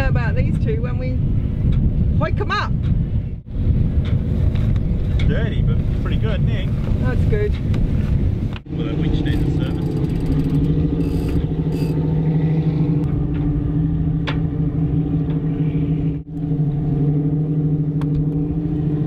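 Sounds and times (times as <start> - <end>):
boat engine idling: 8.7 - 17.2.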